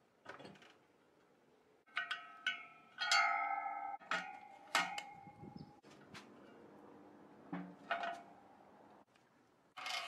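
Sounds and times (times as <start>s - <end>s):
wire-spoke wheel clanking against metal: 1.9s - 5.4s.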